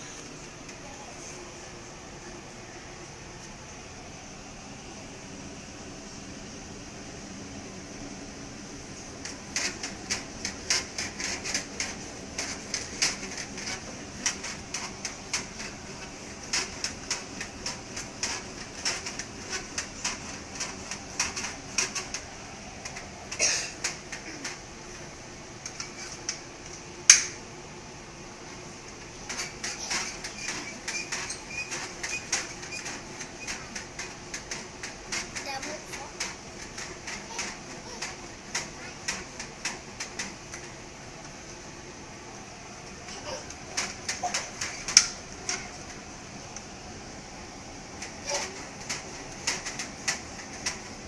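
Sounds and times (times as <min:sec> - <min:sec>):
baby jumper clicks and taps: 0:09.2 - 0:24.7, 0:25.6 - 0:27.4, 0:29.0 - 0:40.8, 0:43.0 - 0:46.7, 0:47.9 - 0:51.0.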